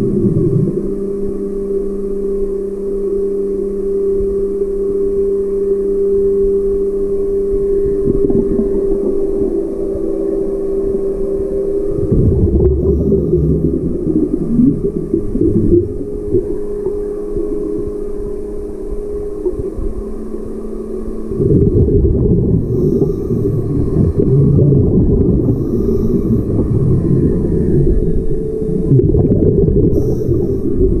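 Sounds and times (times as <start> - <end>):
low rumble: 0.0 - 1.6, 7.4 - 31.0
motorboat engine hum underwater: 0.0 - 31.0.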